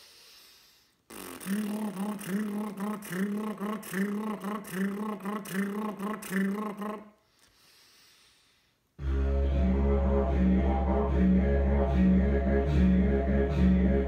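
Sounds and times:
lip buzzing rhythm: 1.1 - 7.1.

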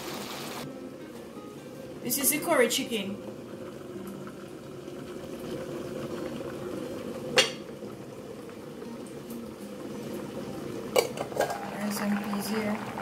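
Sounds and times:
pot bubbling at a simmer: 1.7 - 13.0.

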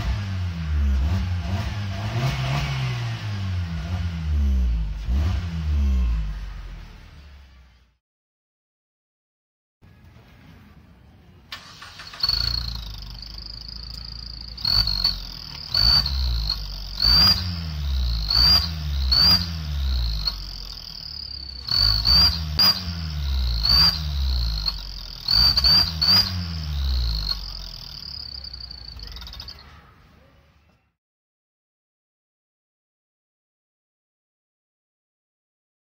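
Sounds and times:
car engine revving: 0.0 - 7.7, 11.6 - 29.5
exhaust whistle: 11.8 - 29.7.

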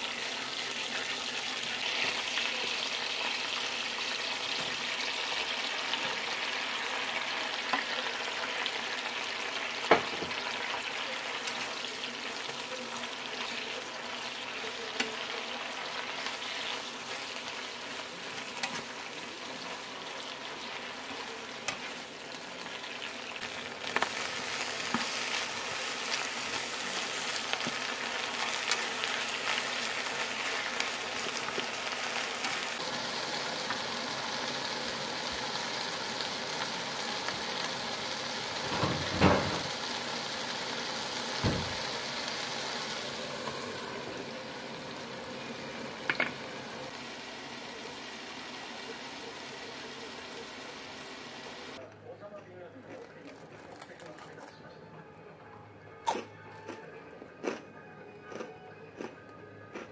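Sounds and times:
food sizzling in a pan: 0.0 - 51.8.

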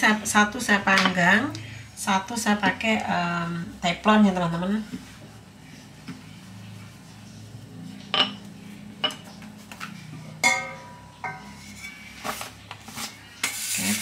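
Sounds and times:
metal baking pan clanking: 10.4 - 12.1.

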